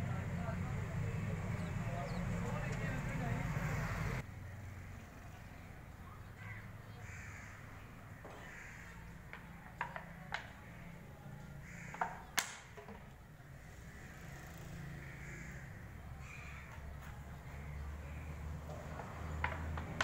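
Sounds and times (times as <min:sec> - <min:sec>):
birds cawing: 0:06.3 - 0:12.6, 0:13.5 - 0:19.6.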